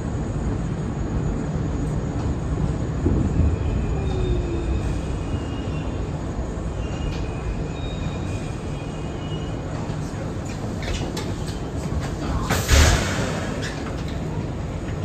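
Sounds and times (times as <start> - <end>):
subway train rumbling on rails: 0.0 - 15.0
high-pitched wheel squeals: 6.7 - 9.6.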